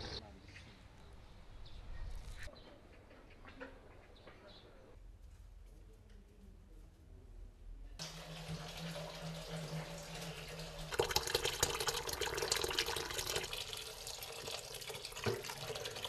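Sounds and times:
tap water running into basin: 8.0s - 16.0s.

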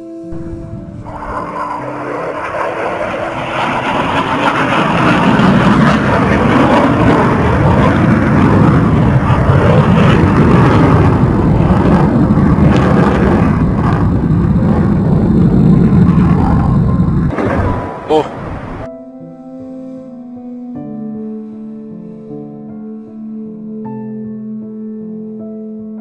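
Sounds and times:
fighter jet engine roar: 0.0s - 18.9s.

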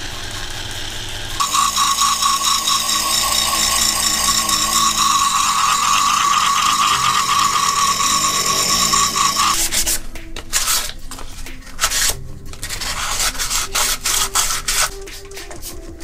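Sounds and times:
rotary tool grinding plastic: 0.0s - 15.6s
sandpaper rubbing on plastic: 8.6s - 15.8s.

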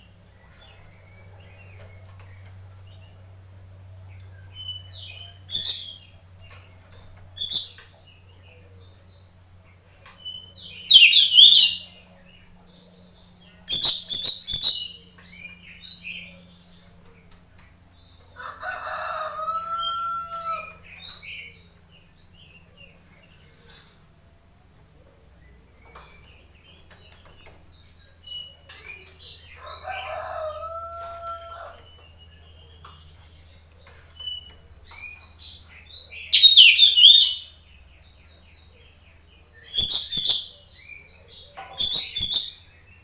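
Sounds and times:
bird whistled calls: 10.9s - 11.8s
rooster crowing: 18.4s - 20.8s, 29.5s - 31.9s.

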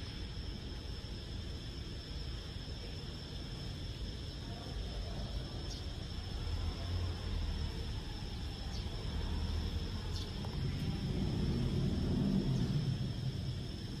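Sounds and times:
steady low rumble: 6.1s - 14.0s.

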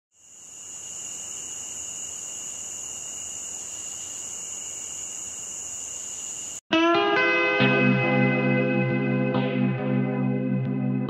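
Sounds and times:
insects droning: 0.1s - 6.6s.

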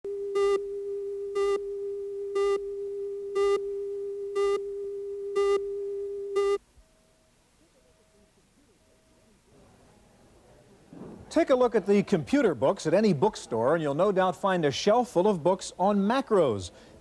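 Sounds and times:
short buzzy beeps: 3.4s - 3.7s, 4.4s - 4.7s, 6.4s - 6.6s.

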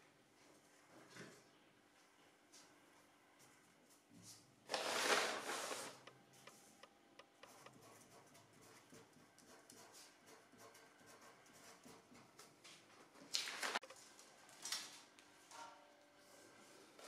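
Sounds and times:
paper rustling and crinkling: 4.7s - 6.1s, 13.2s - 15.1s
pen writing on paper: 7.2s - 12.3s.

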